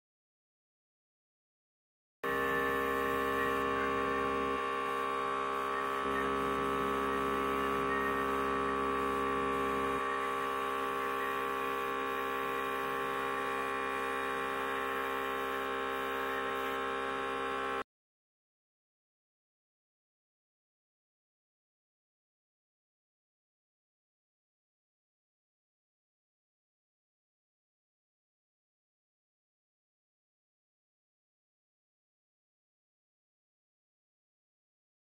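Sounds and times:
airbrush compressor humming: 0:02.2 - 0:17.8.

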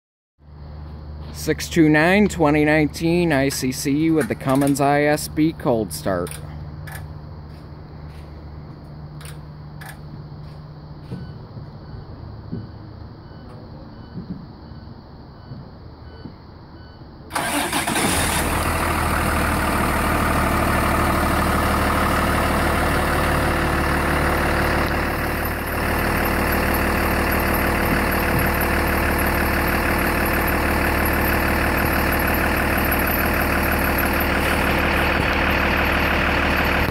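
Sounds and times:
diesel engine idling: 0:00.4 - 0:15.1, 0:17.2 - 0:36.9
starter motor cranking: 0:17.3 - 0:18.7.

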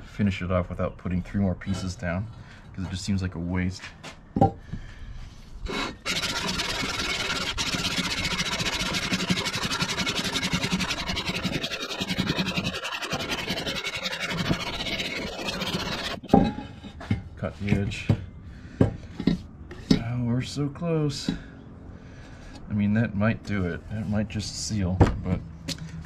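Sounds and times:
metal rasping on sandpaper: 0:05.7 - 0:16.4.

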